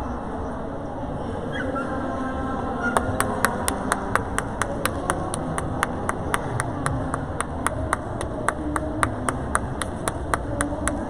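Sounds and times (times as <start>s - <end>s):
crowd murmur: 0.0s - 11.0s
rhythmic clapping in unison: 3.0s - 11.0s.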